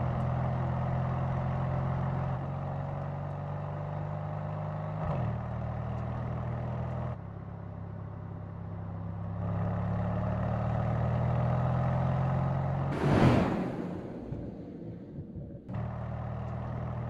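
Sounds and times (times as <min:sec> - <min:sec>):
car engine cruising: 0:07.7 - 0:17.0.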